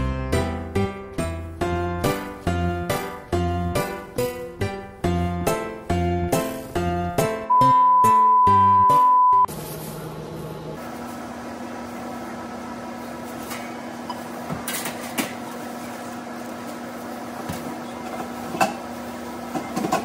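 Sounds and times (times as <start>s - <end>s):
oven humming: 9.5s - 20.0s
metal clanks of oven door and tray: 19.5s - 20.0s.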